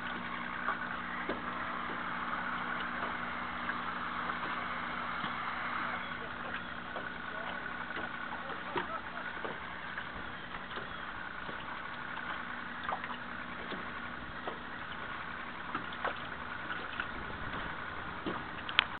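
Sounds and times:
distant motorboat engine idling: 0:00.0 - 0:19.0
faint clicks: 0:15.7 - 0:19.0.

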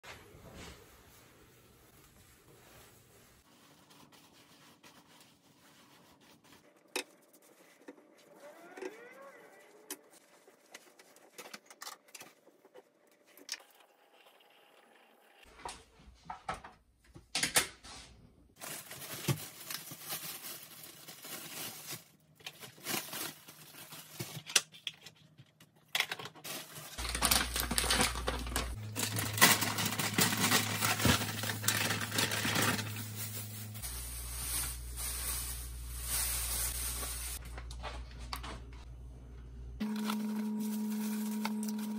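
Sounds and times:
clicks and knocks of kitchen items: 0:15.5 - 0:17.9
plastic packaging crinkling: 0:18.6 - 0:25.2, 0:26.0 - 0:37.5, 0:39.8 - 0:41.9.

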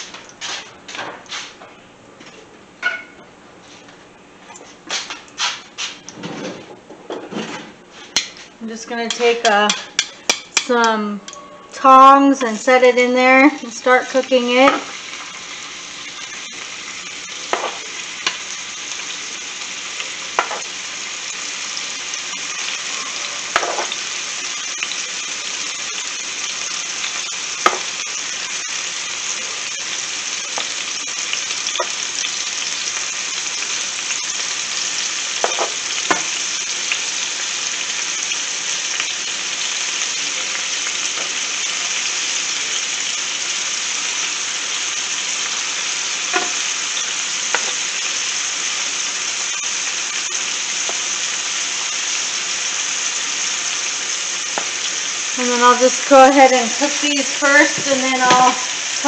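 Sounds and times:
tongs clicking on pan: 0:09.0 - 0:11.4, 0:23.5 - 0:24.0
chicken sizzling in oil: 0:11.7 - 0:59.0.

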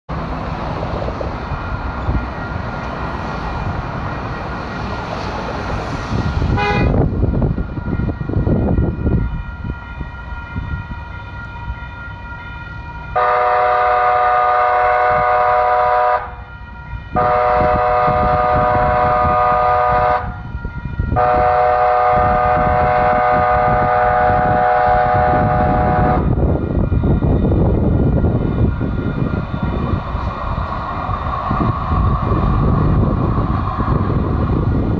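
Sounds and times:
street traffic: 0:00.1 - 0:34.9
train rumbling: 0:00.1 - 0:34.9
railroad crossing bell ringing: 0:01.3 - 0:05.0, 0:06.5 - 0:30.6
train horn blasts: 0:06.5 - 0:07.2, 0:07.8 - 0:26.4.

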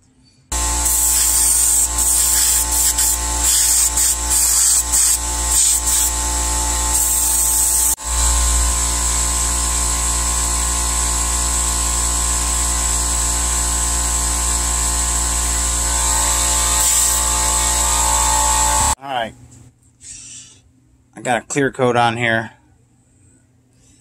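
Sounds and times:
small air compressor humming: 0:00.5 - 0:19.0
airbrush spraying: 0:00.6 - 0:06.2, 0:06.8 - 0:08.0.

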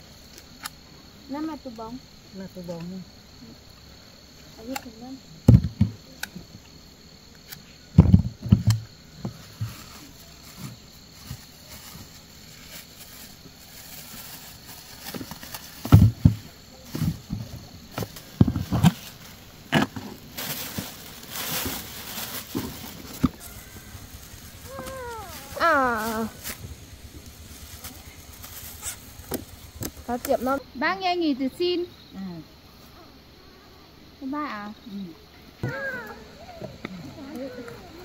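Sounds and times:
crickets droning: 0:00.0 - 0:38.0
dull knocks and bumps: 0:05.5 - 0:06.0
plastic bag rustling: 0:09.7 - 0:30.6.

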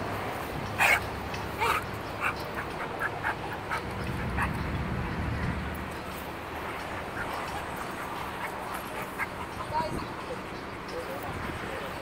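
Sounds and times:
dog yipping: 0:00.8 - 0:01.0, 0:01.6 - 0:04.5.

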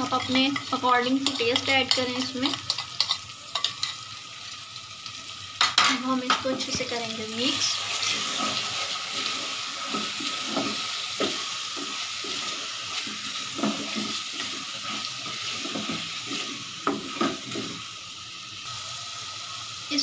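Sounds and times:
sauce sizzling in oil: 0:00.0 - 0:20.0
metal spoon scraping a pot: 0:00.1 - 0:04.0.

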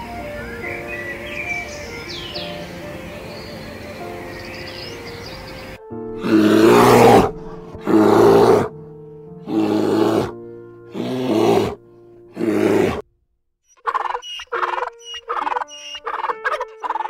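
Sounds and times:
soft background music: 0:00.0 - 0:13.0, 0:14.1 - 0:17.0
bear roaring: 0:06.2 - 0:08.8, 0:09.4 - 0:13.0.

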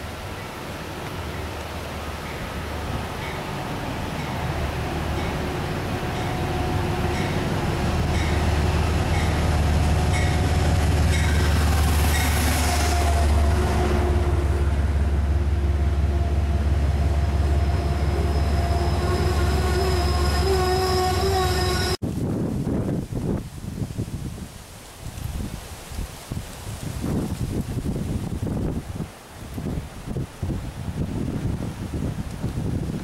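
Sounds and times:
train passing low drone: 0:00.0 - 0:22.0
high wheel squeal: 0:17.0 - 0:22.0.

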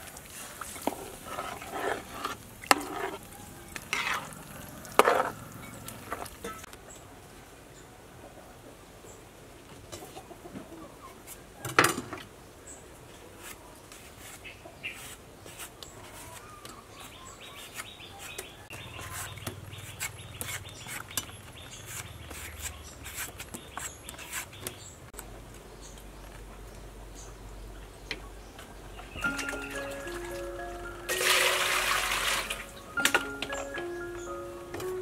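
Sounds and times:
chickens clucking: 0:09.7 - 0:11.7.

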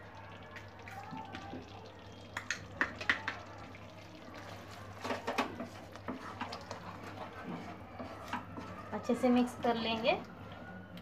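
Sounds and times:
wooden spatula scraping a pan: 0:04.6 - 0:09.4.

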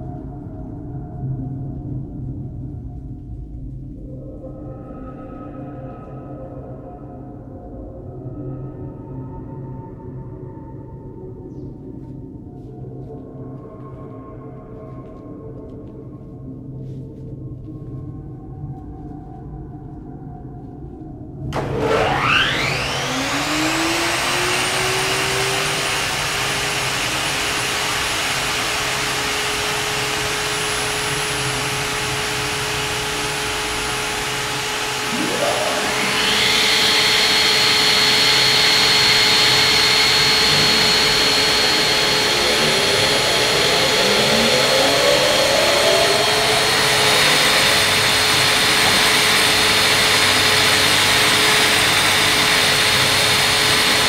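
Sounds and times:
machine motors whining: 0:21.6 - 0:54.0.

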